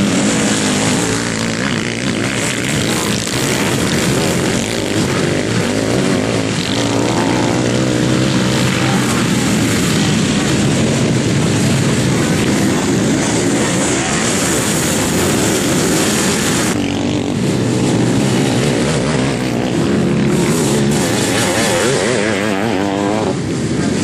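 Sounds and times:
motorcycle engines racing: 0.0 - 24.0.

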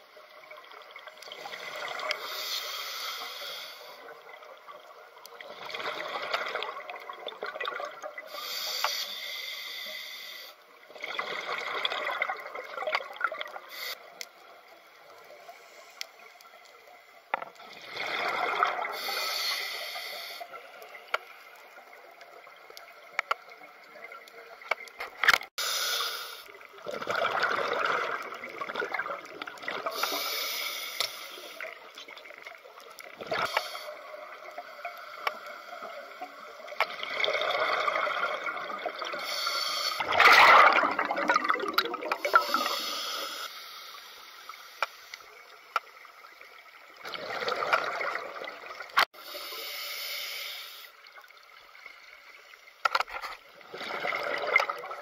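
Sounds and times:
regulator hissing inhale: 1.4 - 4.1, 8.3 - 10.6, 13.7 - 14.2, 15.2 - 16.3, 18.8 - 20.8, 25.6 - 26.7, 29.8 - 31.8, 33.4 - 36.5, 39.2 - 40.1, 42.2 - 45.4, 49.1 - 51.0
gurgling exhaled bubbles: 11.0 - 13.6, 17.6 - 19.2, 26.7 - 30.2, 36.5 - 39.3, 40.0 - 42.8, 47.0 - 49.0, 53.6 - 55.0.

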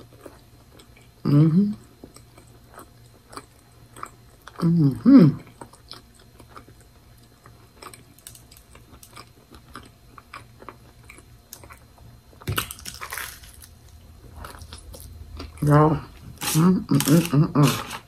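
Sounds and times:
person chewing food: 0.0 - 18.0
crunching bite into sandwich: 12.4 - 15.6.

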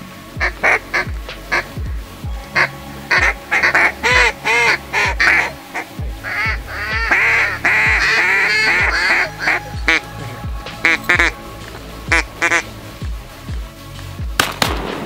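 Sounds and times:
ducks quacking: 0.0 - 13.8
background music: 0.0 - 15.0
deep falling drum hits: 12.1 - 15.0.

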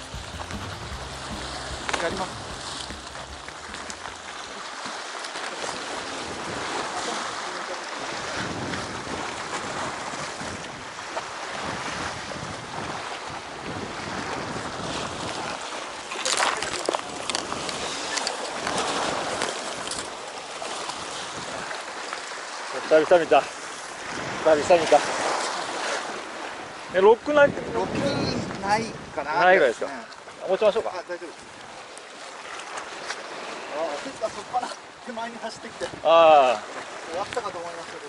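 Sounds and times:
sharp knocks and clatter: 0.0 - 4.5
surf breaking against rocks: 0.0 - 7.0.

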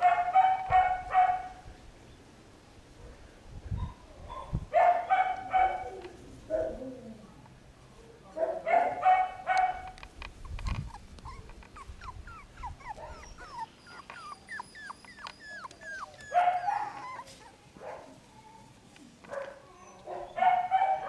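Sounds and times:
puppies yapping: 8.7 - 18.7
puppies squealing: 10.4 - 17.7.

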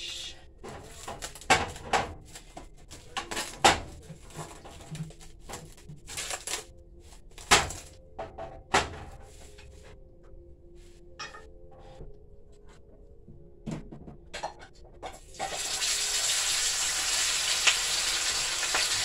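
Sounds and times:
plastic wrap crinkling: 0.8 - 8.0.

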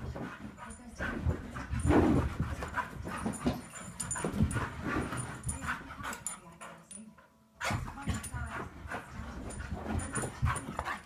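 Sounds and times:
dog panting: 0.0 - 11.0
dog making excited noises: 7.6 - 11.0.

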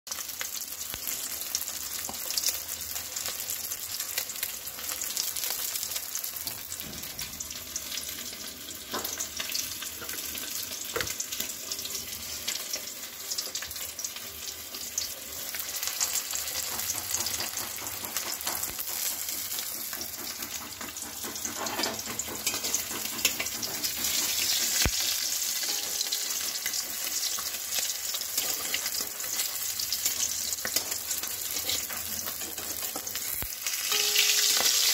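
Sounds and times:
fish frying in hot oil: 0.1 - 34.9.

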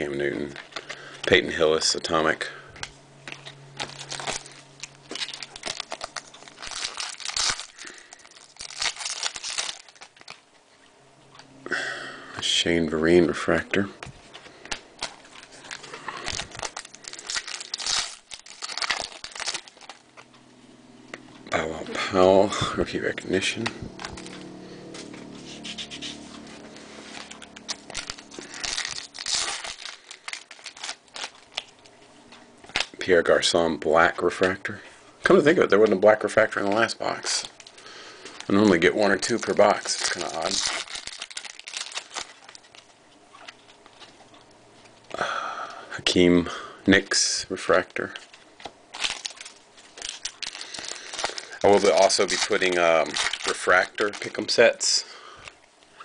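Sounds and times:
foil wrapper crinkling and tearing: 3.3 - 10.5, 14.5 - 20.2, 22.9 - 32.0, 35.8 - 44.2, 47.7 - 55.6
cards being handled: 22.8 - 33.0.

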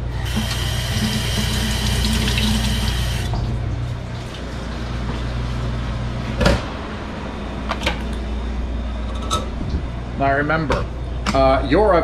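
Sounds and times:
steady low hum: 0.0 - 12.0
faucet water running into sink: 0.2 - 3.4.

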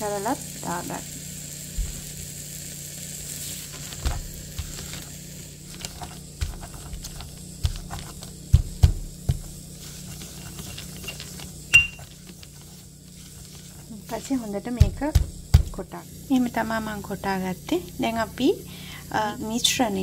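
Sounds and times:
oil sizzling in a pan: 0.0 - 20.0
pestle pounding in a mortar: 6.4 - 9.6, 14.7 - 15.8.

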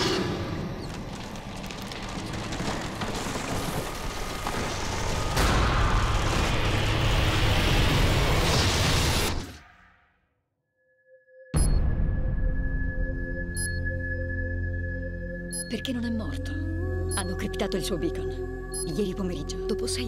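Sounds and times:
scattered crackles: 0.6 - 9.6.

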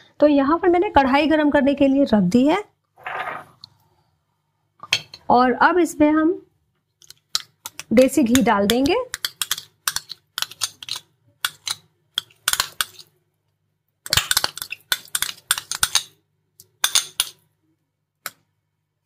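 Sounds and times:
spoon clinking and scraping bowl: 7.3 - 13.1, 14.1 - 16.2, 16.8 - 17.4.

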